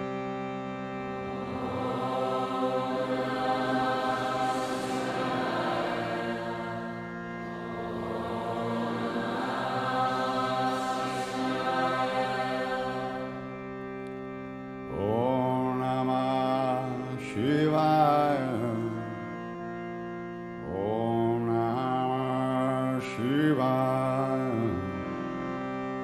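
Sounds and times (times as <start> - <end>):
drone of held tones: 1.0 - 13.5
person singing: 1.2 - 13.6, 14.9 - 19.5, 20.6 - 25.2
chanted mantra: 1.3 - 13.6, 14.9 - 19.3, 20.6 - 25.2.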